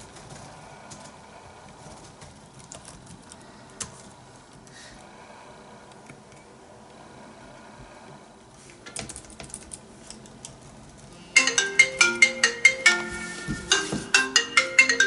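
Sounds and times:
typing on laptop keyboard: 0:01.7 - 0:04.1
smartphone ringtone melody: 0:11.4 - 0:15.0.

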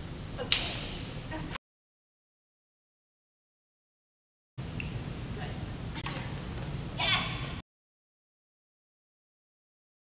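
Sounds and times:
low room noise: 0:04.6 - 0:07.6.

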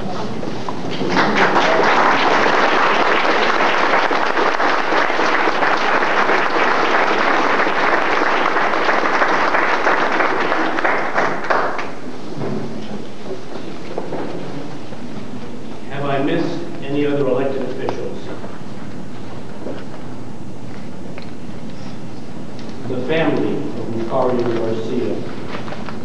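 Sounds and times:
audience applauding: 0:00.9 - 0:12.1.

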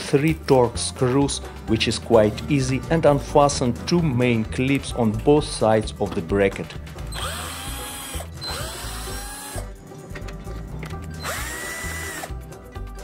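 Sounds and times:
cordless drill motor whining: 0:07.1 - 0:09.6, 0:11.2 - 0:12.3.

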